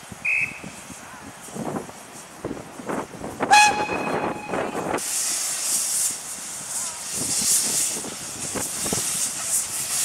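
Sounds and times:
loud hiss of escaping steam: 0:00.0 - 0:10.0
steam locomotive whistle: 0:03.5 - 0:05.0.

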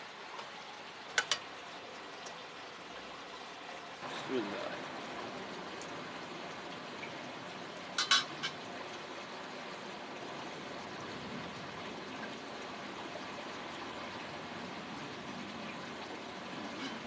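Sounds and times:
metal spoon clinking on bowl: 0:08.0 - 0:08.6.

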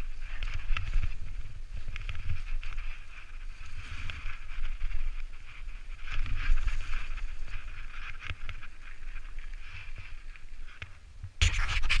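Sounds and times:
bike tyres on dirt and gravel: 0:00.0 - 0:11.4
wind on microphone: 0:00.0 - 0:12.0.

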